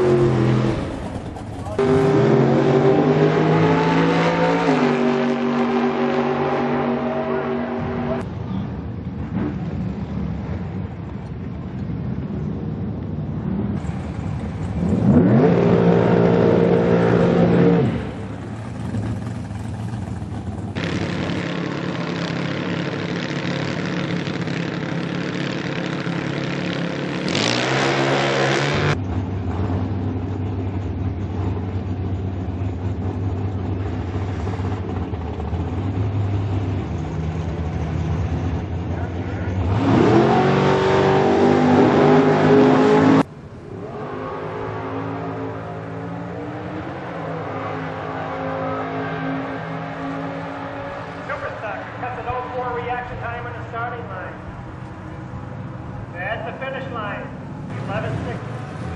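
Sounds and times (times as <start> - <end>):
engines accelerating hard: 0.0 - 10.6, 13.3 - 58.9
drag racing engines idling: 0.4 - 2.1, 18.0 - 27.3, 29.0 - 39.7, 51.0 - 58.9.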